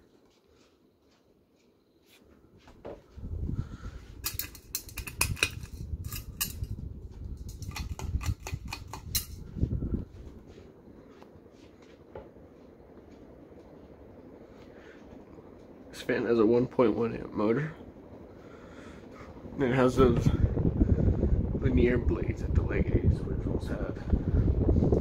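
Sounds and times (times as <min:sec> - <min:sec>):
ceiling fan running: 0:00.0 - 0:25.0
sharp clicks and rattles: 0:04.2 - 0:09.4
low rumble: 0:08.8 - 0:10.9, 0:17.2 - 0:25.0.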